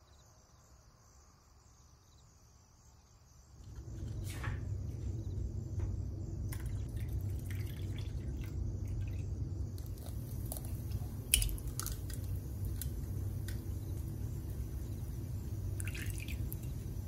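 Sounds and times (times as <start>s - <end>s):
steady low hum: 3.3s - 17.0s
juice pouring into cup: 6.5s - 13.8s, 15.6s - 17.0s
light clicks and drips: 6.5s - 14.6s, 15.7s - 17.0s.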